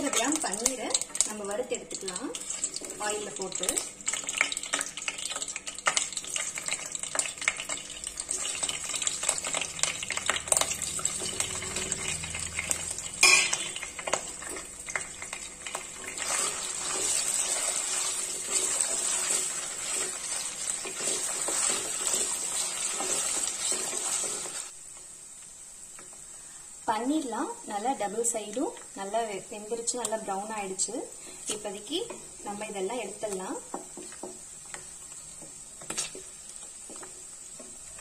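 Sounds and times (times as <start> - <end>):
food sizzling in hot oil: 0.0 - 38.0
wooden spatula clicks and taps: 33.3 - 38.0.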